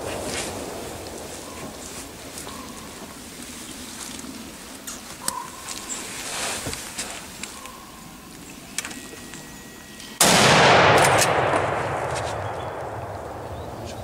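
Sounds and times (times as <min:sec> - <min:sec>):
faint rustling: 0:00.0 - 0:08.4
rifle shot with echo: 0:10.2 - 0:13.9.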